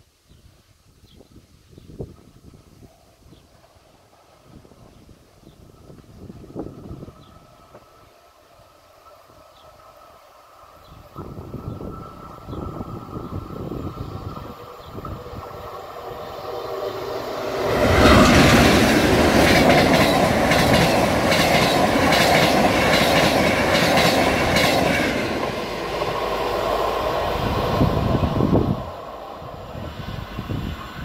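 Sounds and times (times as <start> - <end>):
train passing at speed: 2.2 - 31.0
clickety-clack of train wheels: 17.5 - 26.5.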